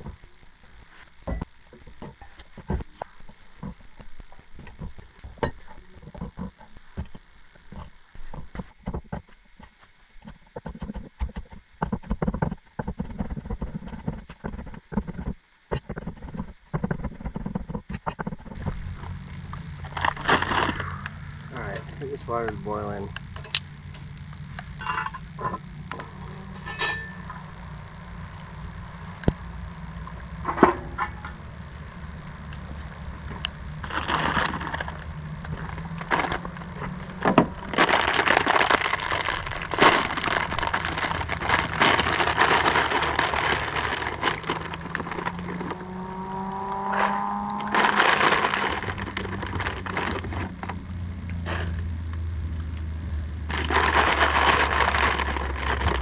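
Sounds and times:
plastic bag crinkling: 19.8s - 21.6s, 33.8s - 46.0s, 46.9s - 50.8s, 53.4s - 56.0s
metal lid clinking: 26.6s - 27.4s
dry pasta pouring into pot: 37.6s - 45.7s, 47.6s - 50.6s, 53.5s - 56.0s.

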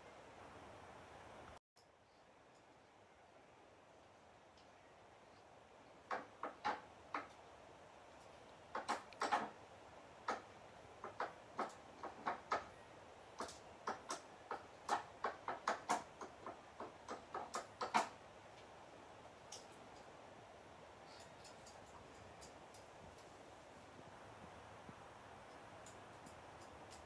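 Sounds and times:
dog claws clicking on surface: 13.4s - 18.2s.

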